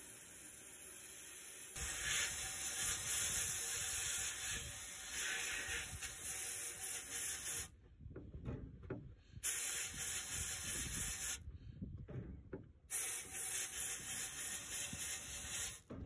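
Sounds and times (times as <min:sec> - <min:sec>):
sandblasting gun hissing: 0:00.0 - 0:07.7, 0:09.4 - 0:11.4, 0:12.9 - 0:15.8.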